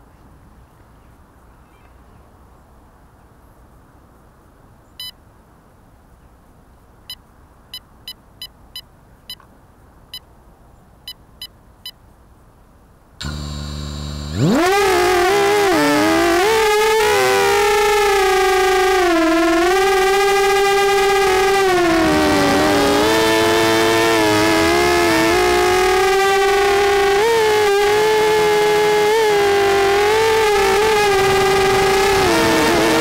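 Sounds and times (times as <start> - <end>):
short electronic beeps: 5.0 - 5.2
drone motors whining: 13.2 - 33.0
low motor hum: 13.2 - 33.0.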